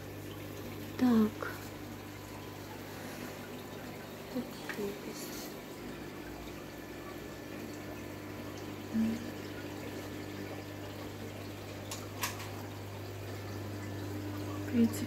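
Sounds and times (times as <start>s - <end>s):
aquarium filters humming: 0.0s - 15.0s
water trickling and bubbling: 0.0s - 15.0s.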